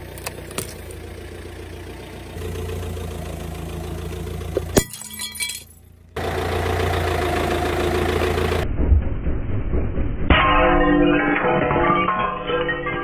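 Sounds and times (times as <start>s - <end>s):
car engine running: 0.0s - 10.3s
brittle object cracking under tyre: 0.1s - 1.0s.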